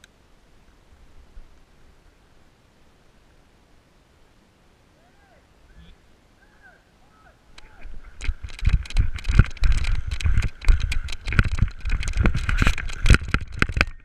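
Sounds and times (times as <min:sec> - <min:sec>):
gear knocking and rattling: 0:07.9 - 0:14.0.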